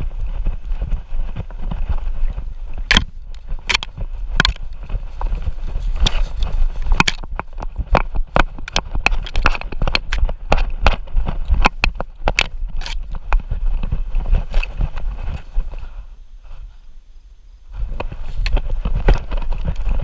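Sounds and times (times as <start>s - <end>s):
low rumble of movement: 0.0s - 20.0s
camera mount knocking and rattling: 2.9s - 4.6s, 6.8s - 13.2s.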